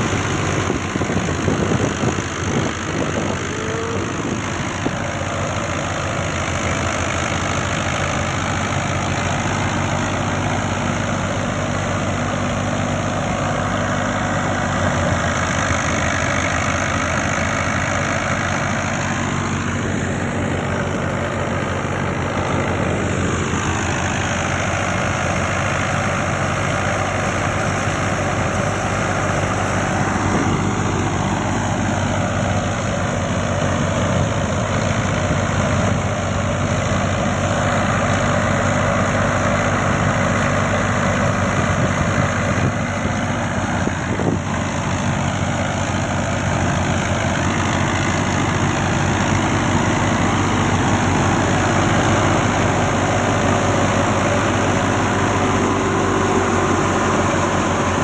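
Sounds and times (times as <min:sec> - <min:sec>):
threshing drum and fan whirring: 0:00.0 - 0:15.8
tractor diesel engine under load: 0:00.0 - 0:58.0.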